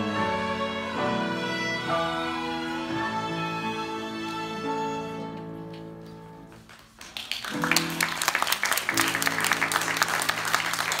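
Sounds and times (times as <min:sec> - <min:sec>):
violin ensemble chord: 0:00.0 - 0:05.6
audience applause: 0:06.8 - 0:11.0.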